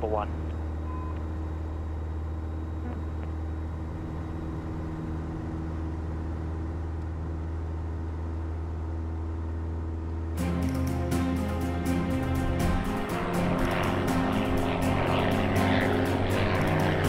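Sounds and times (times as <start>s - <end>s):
aircraft engine and propeller drone: 0.0s - 17.0s
music: 10.4s - 17.0s.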